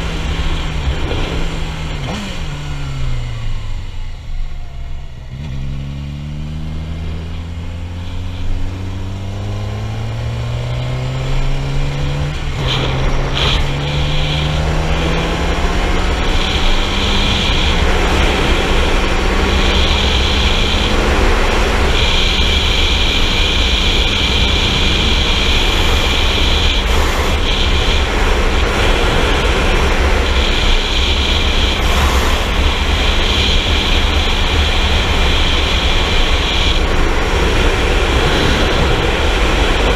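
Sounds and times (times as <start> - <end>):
motorcycle engine revving: 0.0 - 39.9
wind rushing over microphone: 11.2 - 39.9.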